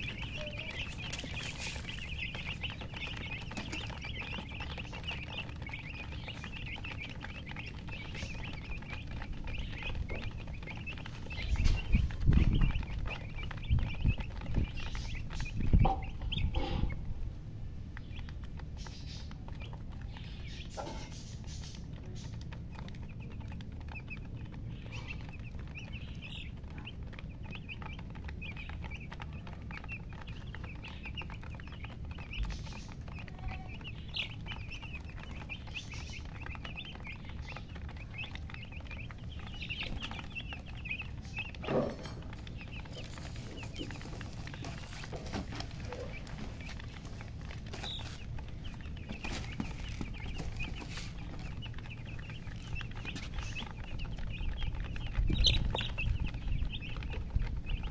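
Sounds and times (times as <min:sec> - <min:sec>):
chicks peeping: 0:00.0 - 0:57.9
low thumps and rumbles: 0:00.0 - 0:57.9.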